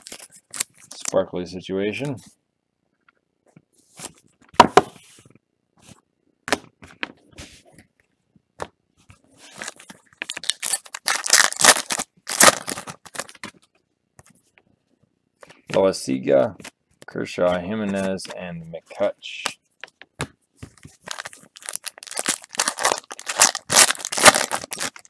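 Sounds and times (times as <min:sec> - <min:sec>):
card pack wrapper crinkling: 0:00.0 - 0:01.2, 0:09.5 - 0:13.6, 0:20.9 - 0:25.0.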